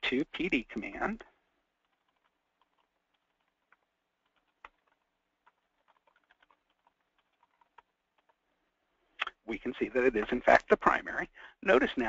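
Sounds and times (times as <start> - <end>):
faint keyboard typing: 0.4 - 9.4.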